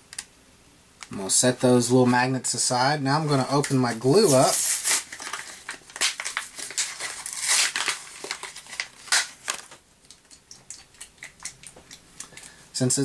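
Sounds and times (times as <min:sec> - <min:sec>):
plastic packaging crinkling: 0:03.3 - 0:12.6.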